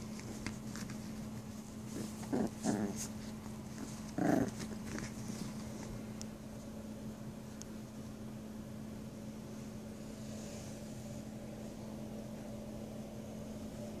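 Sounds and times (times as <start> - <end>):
puppies play growling: 0.0 - 7.4
steady low hum: 0.0 - 14.0.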